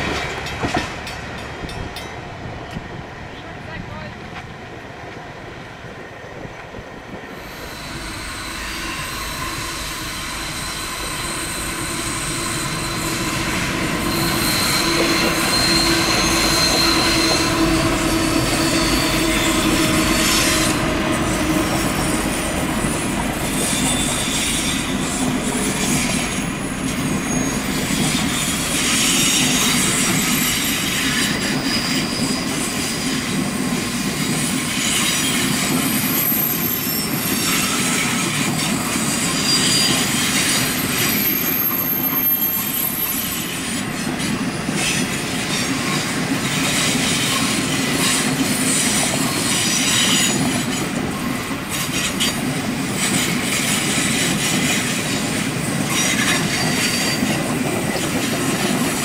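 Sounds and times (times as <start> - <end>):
train wheels on rails: 0.0 - 59.0
high-pitched wheel squeals: 7.3 - 32.6, 34.8 - 45.8.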